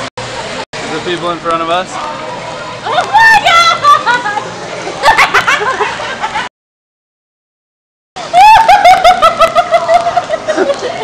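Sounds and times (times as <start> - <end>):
loud laughter: 8.4 - 11.0.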